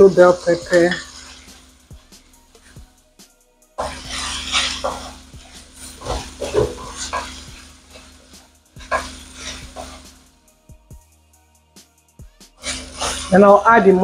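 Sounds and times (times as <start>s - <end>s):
vegetables sizzling in oil: 0.0s - 3.0s, 3.6s - 11.0s, 12.6s - 14.0s
wooden spatula scraping a wok: 0.0s - 3.0s, 3.8s - 10.5s, 12.6s - 14.0s.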